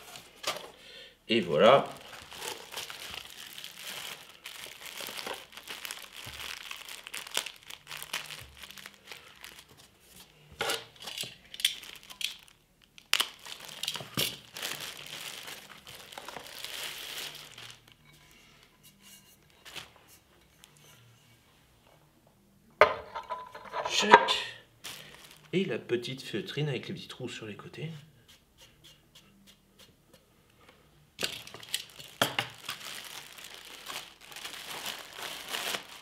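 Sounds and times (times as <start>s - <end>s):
plastic wrapping crinkling: 0.0s - 0.8s, 1.8s - 20.7s, 24.8s - 25.7s, 31.2s - 36.0s
plastic tearing: 1.9s - 9.8s, 10.6s - 18.0s, 31.2s - 36.0s.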